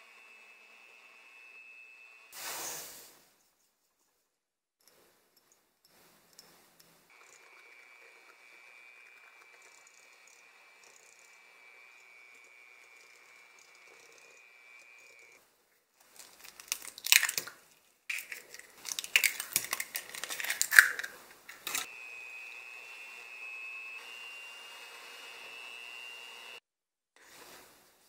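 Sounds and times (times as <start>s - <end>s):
electric hand mixer whining: 0.0s - 2.4s, 7.1s - 15.4s, 21.7s - 26.6s
eggs being cracked: 16.2s - 21.9s.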